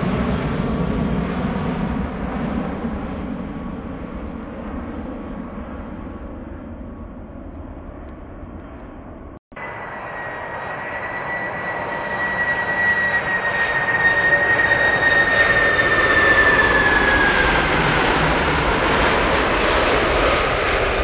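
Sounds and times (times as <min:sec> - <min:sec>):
jet engines whining: 0:00.0 - 0:21.0
jet broad rush: 0:09.5 - 0:21.0.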